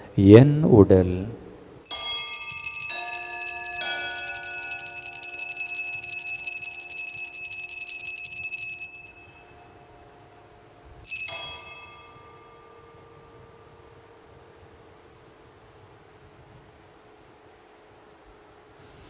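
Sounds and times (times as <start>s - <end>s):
altar bells ringing: 1.8s - 10.0s, 11.1s - 13.9s.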